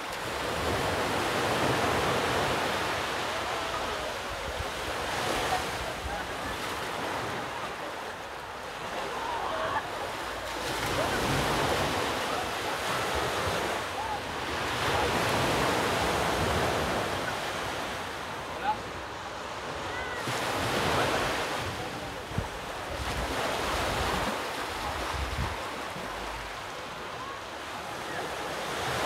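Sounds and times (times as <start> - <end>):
surf washing on rocky shore: 0.0 - 29.0.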